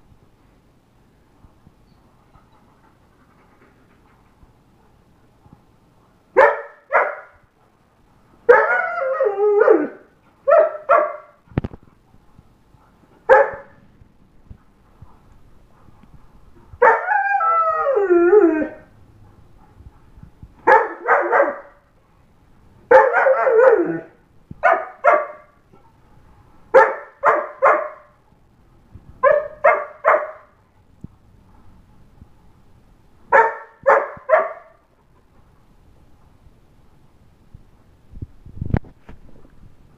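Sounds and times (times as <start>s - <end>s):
dog howling barks: 6.4s - 7.4s, 8.5s - 11.4s, 16.8s - 19.0s, 20.6s - 21.8s, 22.9s - 25.6s, 26.7s - 28.2s, 29.2s - 30.6s, 33.3s - 34.8s
dog howling: 8.5s - 10.9s, 16.8s - 19.0s, 22.9s - 24.2s.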